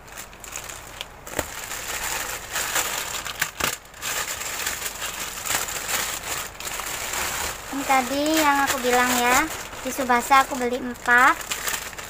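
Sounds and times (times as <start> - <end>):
plastic bag crinkling: 0.0 - 12.0
scissors cutting plastic: 0.2 - 12.0.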